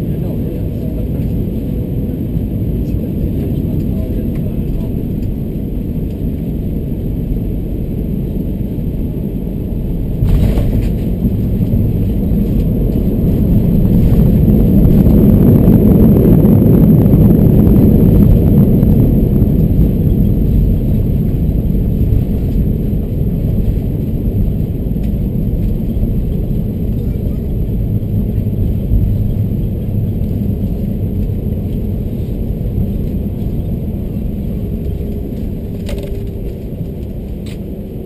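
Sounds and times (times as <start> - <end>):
jet engine and airflow noise: 0.0 - 38.0
wheels rumbling on runway: 0.0 - 38.0.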